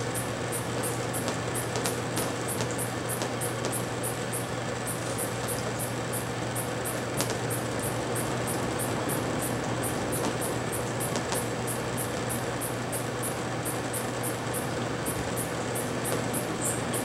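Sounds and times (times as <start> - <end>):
high-pitched pulsing chirp: 0.0 - 17.0.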